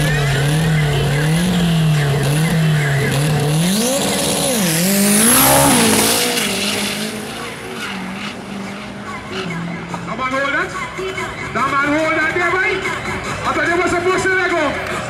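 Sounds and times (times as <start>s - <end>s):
engine revving: 0.0s - 10.6s.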